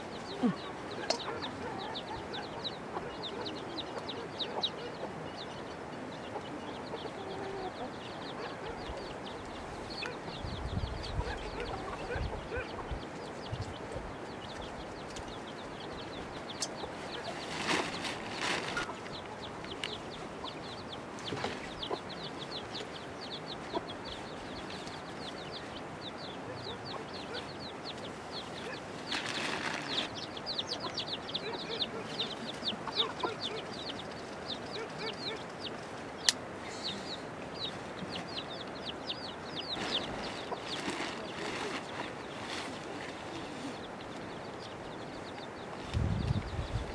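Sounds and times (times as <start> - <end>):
chickens chirping: 0.0 - 46.9
rustling: 17.0 - 19.3, 28.5 - 30.2, 39.8 - 43.8.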